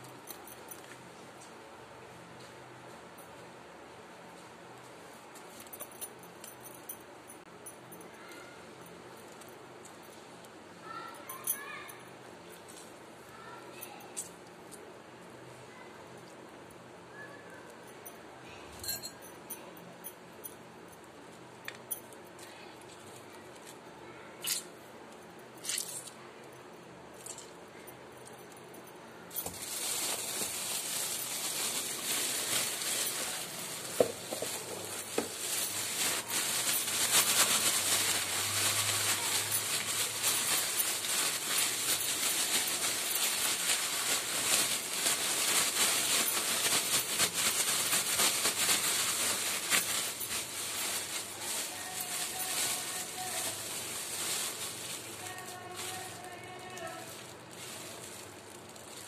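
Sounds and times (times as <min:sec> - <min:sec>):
plastic bag crinkling: 0:29.3 - 0:59.0.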